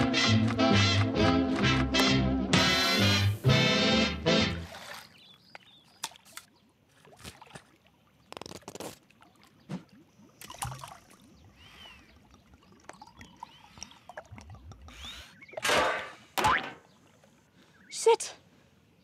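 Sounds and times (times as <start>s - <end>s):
pool water splashing and lapping: 3.2s - 17.8s.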